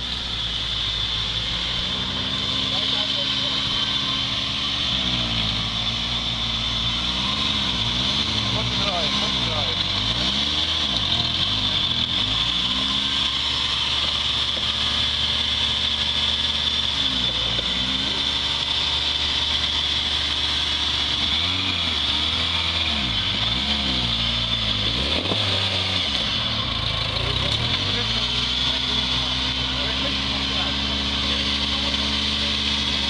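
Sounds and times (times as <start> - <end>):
off-road vehicle engine revving: 0.0 - 33.0.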